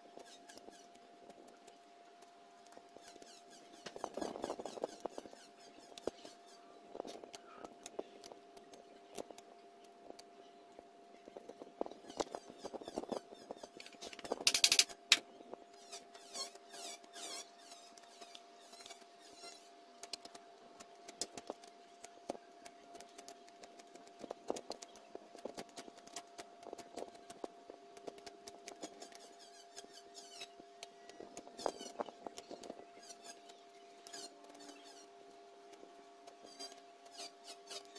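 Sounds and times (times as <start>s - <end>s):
knife scraping bamboo: 36.5s - 37.9s.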